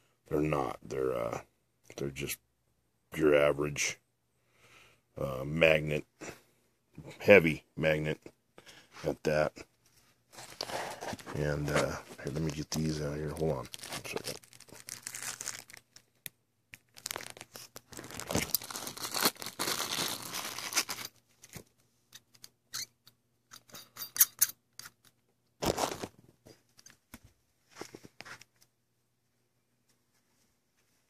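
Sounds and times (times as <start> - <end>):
plastic bags rustling and crinkling: 10.3 - 16.2, 16.8 - 21.6, 25.6 - 26.2.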